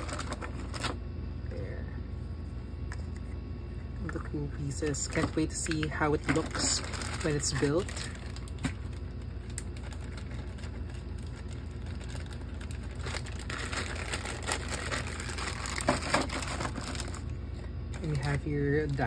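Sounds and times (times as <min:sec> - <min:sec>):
plastic bag crinkling: 0:00.0 - 0:01.0, 0:04.8 - 0:19.0
steady low hum: 0:00.0 - 0:19.0.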